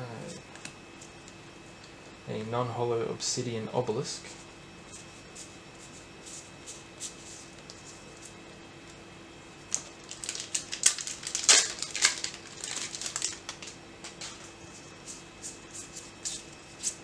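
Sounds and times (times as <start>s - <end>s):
foil pack crinkling: 9.7s - 14.5s.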